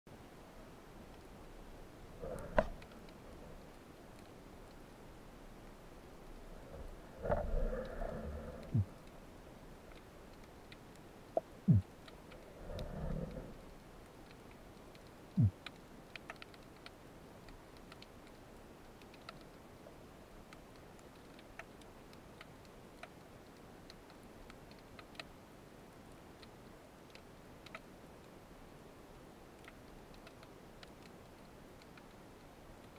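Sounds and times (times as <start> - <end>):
low underwater hiss: 0.2 - 20.5
underwater clicks and ticks: 1.0 - 1.6, 2.2 - 28.4, 29.0 - 32.9.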